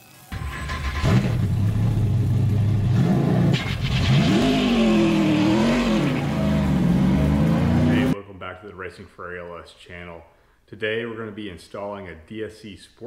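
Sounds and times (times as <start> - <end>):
car engine idling and revving: 0.4 - 8.2.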